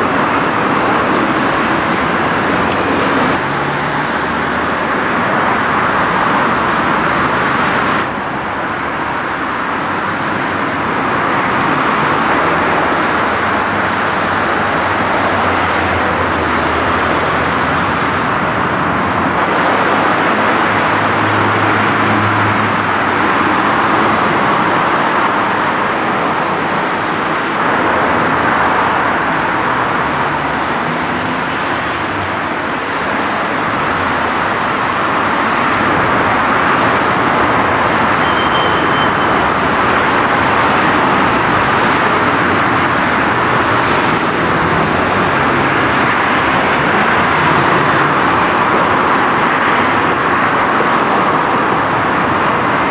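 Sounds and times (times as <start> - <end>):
road traffic hiss: 0.0 - 52.9
faint high whistle: 38.2 - 39.3.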